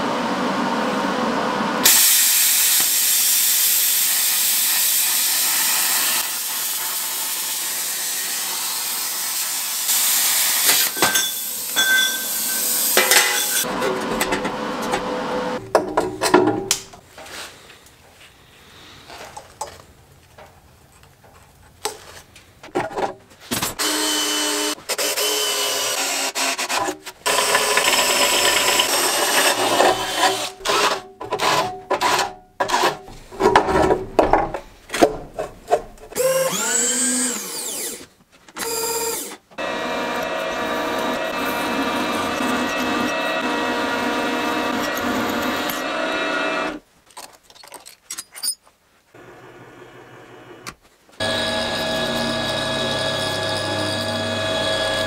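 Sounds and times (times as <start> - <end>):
drill cutting into steel: 1.8 - 13.7, 23.8 - 33.0, 36.2 - 46.8, 51.2 - 55.0
handling of metal parts: 10.7 - 14.5, 47.0 - 48.8
drill motor whine: 23.8 - 26.6, 27.3 - 30.5, 36.2 - 46.8, 51.2 - 55.0.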